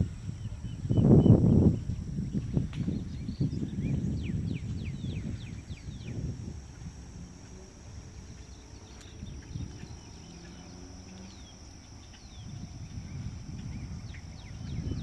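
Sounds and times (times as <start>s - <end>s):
high-pitched whine: 0.0s - 15.0s
wind on microphone: 0.0s - 15.0s
bird chirps: 8.2s - 15.0s.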